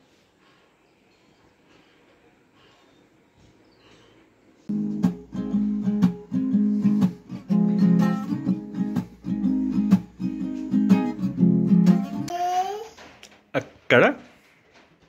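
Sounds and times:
acoustic guitar strumming chords: 0:04.7 - 0:12.3.

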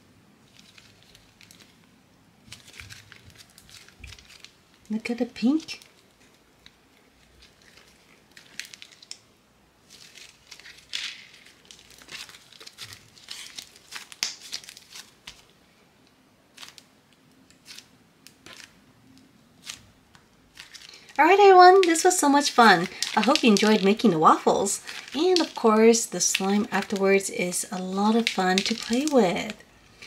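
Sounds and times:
slime being squished: 0:20.5 - 0:27.0, 0:27.7 - 0:29.6.

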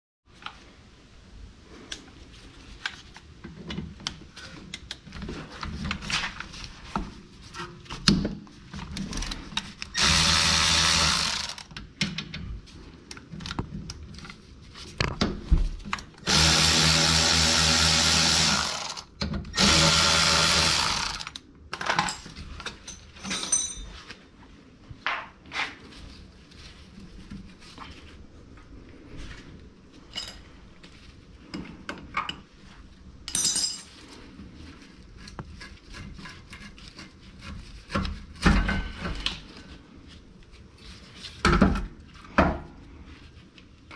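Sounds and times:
power tool running: 0:10.0 - 0:11.7, 0:16.2 - 0:21.4
clanks of tools and metal parts: 0:21.2 - 0:24.1, 0:30.1 - 0:30.5, 0:33.3 - 0:34.0.

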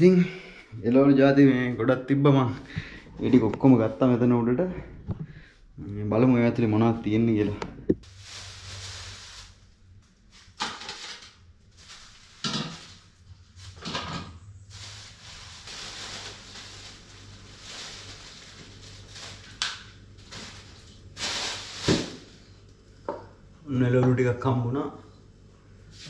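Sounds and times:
plastic bags rustling: 0:07.2 - 0:22.5.

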